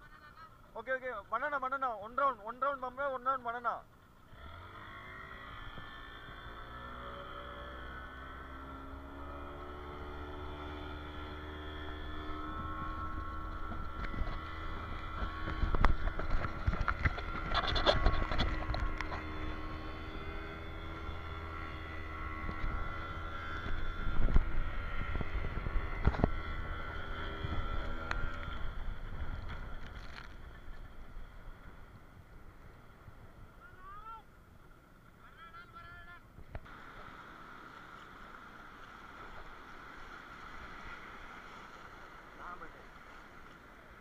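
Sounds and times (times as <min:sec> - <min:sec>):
motorboat engine droning: 0:00.0 - 0:44.0
wind on microphone: 0:09.3 - 0:33.6.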